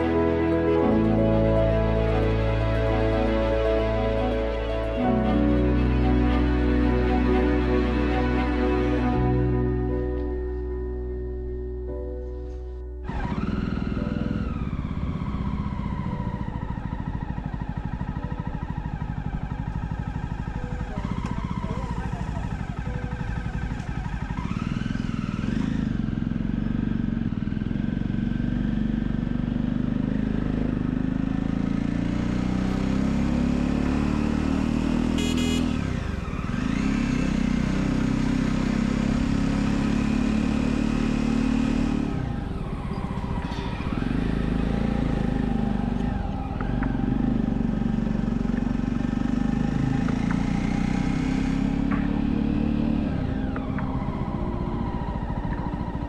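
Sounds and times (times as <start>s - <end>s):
motorcycle engine running: 13.0s - 56.0s.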